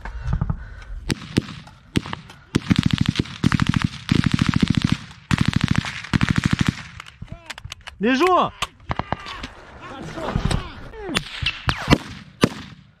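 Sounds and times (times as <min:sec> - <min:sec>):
automatic gunfire: 0:01.1 - 0:07.0.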